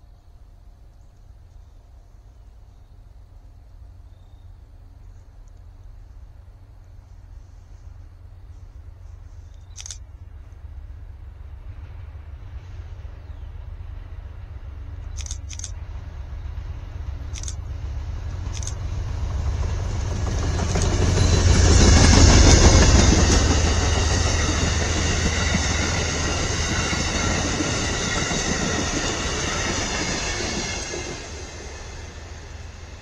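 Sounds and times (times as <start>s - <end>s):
passenger train passing: 0.0s - 33.0s
sharp high clicks: 9.6s - 10.0s, 15.0s - 15.8s, 17.3s - 17.6s, 18.5s - 18.8s
train wheels clattering and ringing: 20.2s - 31.8s.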